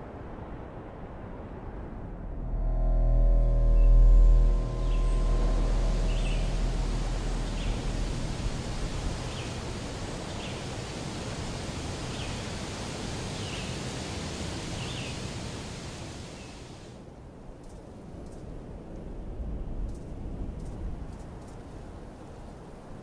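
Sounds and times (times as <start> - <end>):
steady outdoor hiss: 0.0 - 23.0
music track: 2.4 - 9.3.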